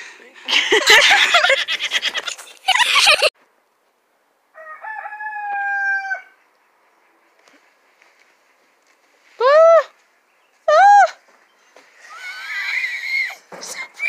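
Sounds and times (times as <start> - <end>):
rooster crowing: 4.5 - 6.4.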